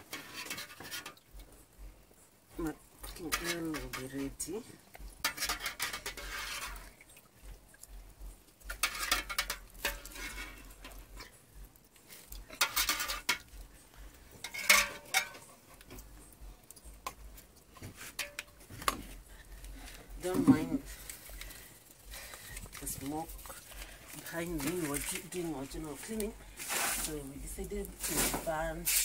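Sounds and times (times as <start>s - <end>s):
metal spoon scraping and clinking pot: 0.0s - 1.3s, 3.0s - 6.9s, 8.6s - 11.4s, 12.3s - 13.6s, 14.4s - 16.0s, 18.0s - 19.2s.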